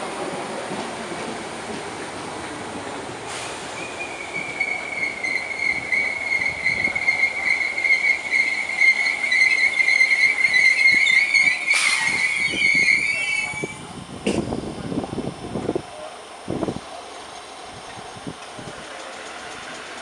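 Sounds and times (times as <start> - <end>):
train rumbling: 0.0 - 20.0
train wheels squealing on rails: 3.2 - 14.4.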